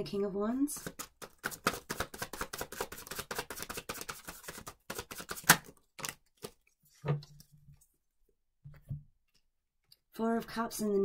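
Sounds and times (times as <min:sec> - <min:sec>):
cards snapping: 0:00.8 - 0:06.6
cards being shuffled: 0:00.8 - 0:06.7.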